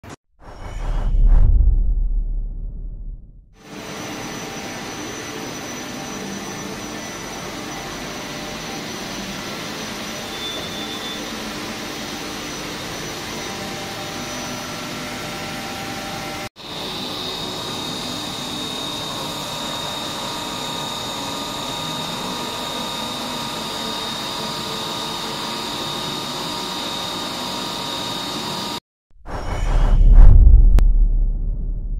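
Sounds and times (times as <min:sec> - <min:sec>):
high spindle whine: 0:03.6 - 0:28.7.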